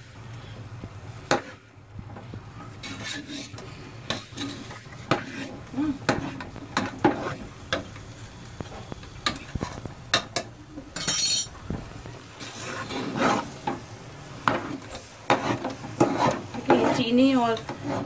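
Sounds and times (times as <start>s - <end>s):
metal ladle scraping a pot: 2.8s - 7.5s, 12.4s - 13.7s, 14.5s - 18.0s.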